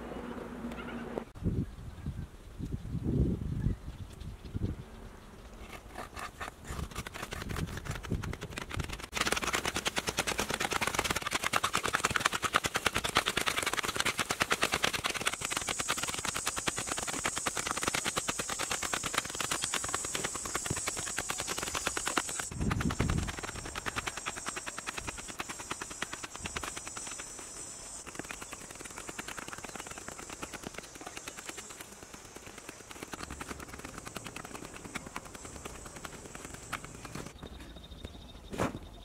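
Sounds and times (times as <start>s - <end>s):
hoes chopping into hard earth: 5.7s - 27.4s, 28.0s - 37.4s.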